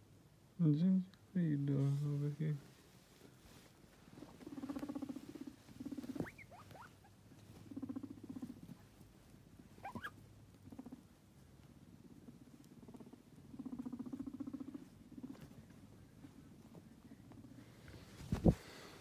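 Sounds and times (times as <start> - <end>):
guinea pigs rumbling: 4.0 - 19.0
guinea pig squeak: 4.4 - 8.7, 9.7 - 11.1.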